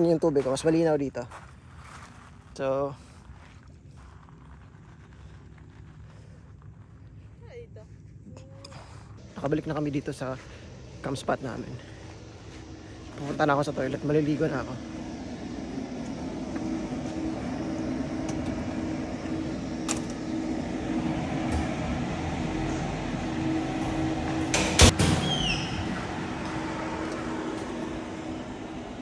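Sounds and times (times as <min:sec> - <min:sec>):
steady low hum: 0:00.0 - 0:29.0
door slamming shut: 0:24.5 - 0:26.0
short falling squeaks: 0:25.2 - 0:26.0.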